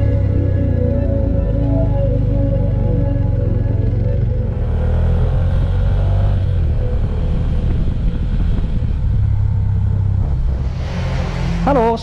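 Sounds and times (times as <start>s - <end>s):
motorcycle engine: 0.0s - 12.0s
wind noise: 5.5s - 12.0s.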